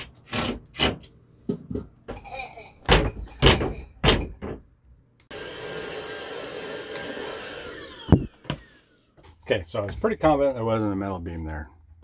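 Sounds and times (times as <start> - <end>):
electric motor whining: 5.3 - 9.0.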